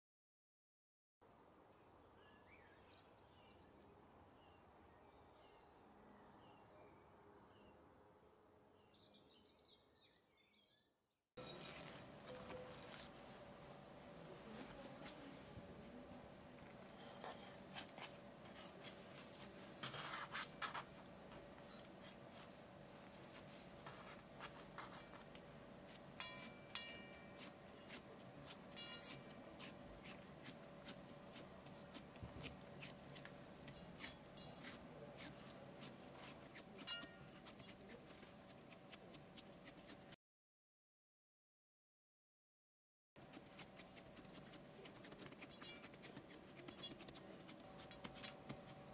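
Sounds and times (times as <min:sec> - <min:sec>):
clicks against metal pan: 0:26.2 - 0:27.2.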